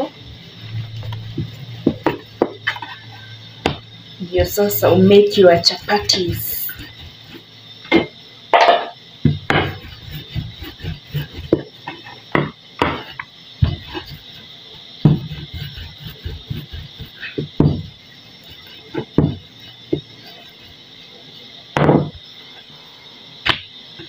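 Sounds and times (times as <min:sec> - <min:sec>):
rolling pin rolling dough: 0:00.0 - 0:21.2, 0:21.8 - 0:22.7
rolling pin knocks and thuds: 0:01.3 - 0:02.8, 0:03.6 - 0:03.9, 0:07.9 - 0:14.2, 0:15.0 - 0:18.0, 0:18.9 - 0:20.1, 0:21.8 - 0:22.2.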